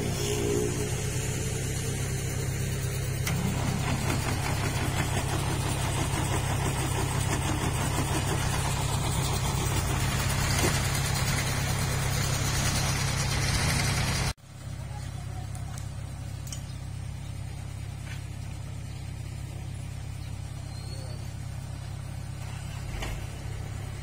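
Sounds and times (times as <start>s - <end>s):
farm machinery engine idling: 0.8s - 24.0s.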